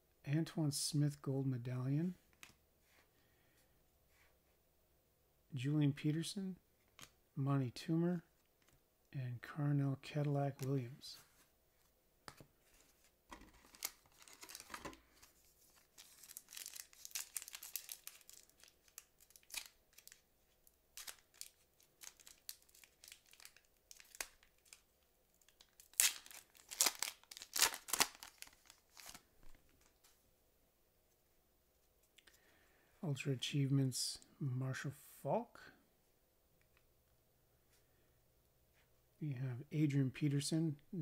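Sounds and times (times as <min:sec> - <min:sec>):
foil wrapper tearing and crinkling: 0:13.5 - 0:14.9, 0:15.7 - 0:20.2, 0:20.9 - 0:24.8, 0:25.5 - 0:29.2.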